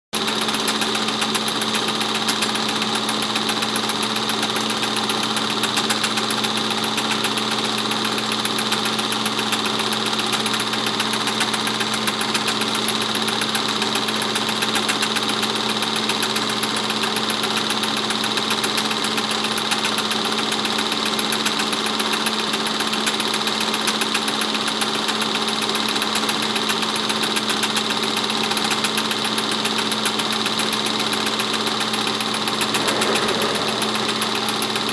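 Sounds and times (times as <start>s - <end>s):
constant hum: 32.7s - 34.9s.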